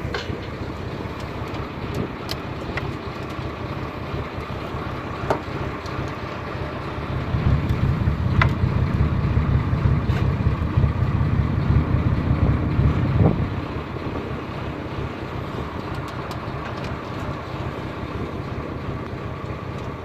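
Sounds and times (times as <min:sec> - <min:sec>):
boat diesel engine rumbling: 0:00.0 - 0:20.0.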